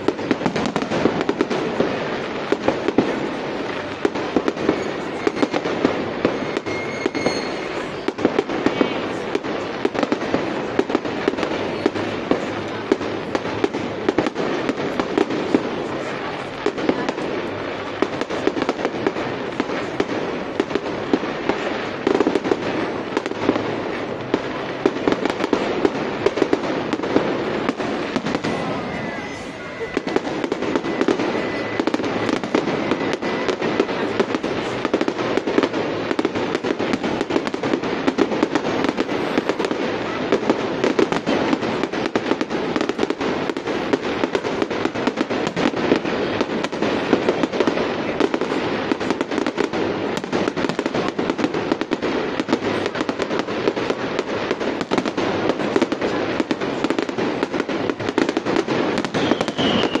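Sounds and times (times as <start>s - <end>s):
fireworks bangs and crackling: 0.0s - 60.0s
falling firework whistle: 4.6s - 9.1s, 27.6s - 33.9s, 59.0s - 60.0s.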